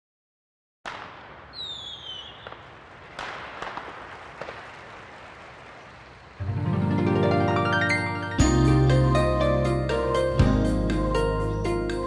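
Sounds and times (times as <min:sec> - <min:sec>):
fireworks bangs: 0:00.8 - 0:06.6
falling firework whistle: 0:00.9 - 0:06.2.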